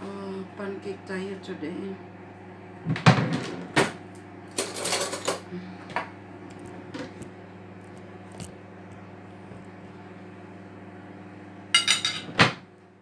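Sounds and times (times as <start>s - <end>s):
steady low hum: 0.0s - 13.0s
dishes and cutlery clattering: 11.8s - 12.3s.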